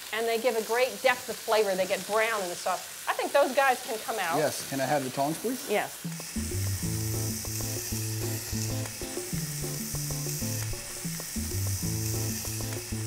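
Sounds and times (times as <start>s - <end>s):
oil sizzling in a pan: 0.0s - 13.0s
background music with bass: 6.1s - 13.0s.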